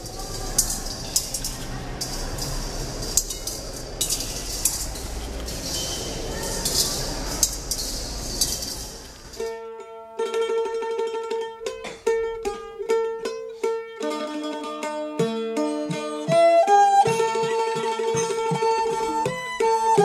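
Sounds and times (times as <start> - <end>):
coins clinking into metal bowls: 0.0 - 9.5
plucked-string music: 0.0 - 20.0.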